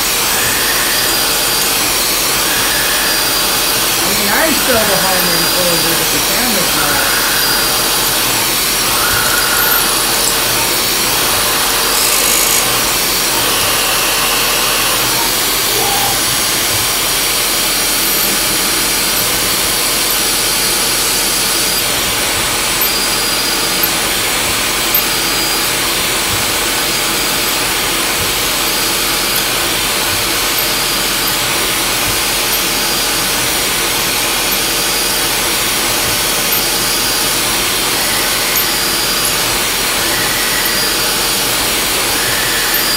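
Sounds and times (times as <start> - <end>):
mill cutting metal: 0.0 - 4.0, 5.4 - 21.9, 34.6 - 42.9.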